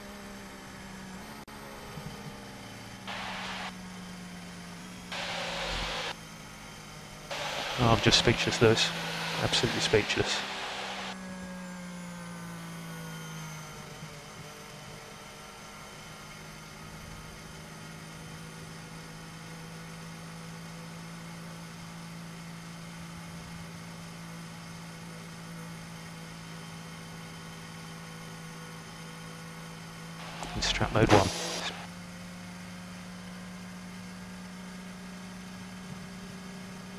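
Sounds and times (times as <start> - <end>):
racing car engine running: 0.2 - 11.2, 29.8 - 31.9.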